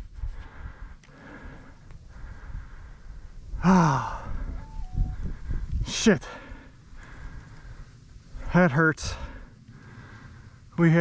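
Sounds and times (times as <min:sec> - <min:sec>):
heavy breathing: 0:00.3 - 0:04.6, 0:05.2 - 0:10.7.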